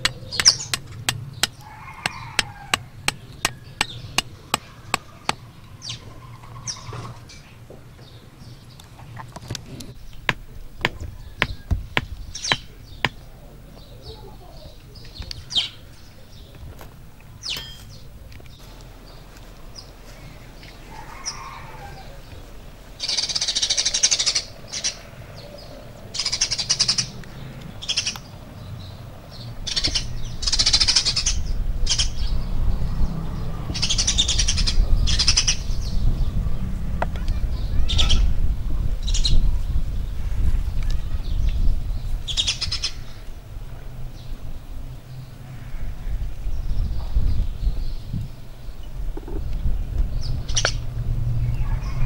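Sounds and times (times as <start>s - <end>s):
birds chirping: 0.0s - 52.0s.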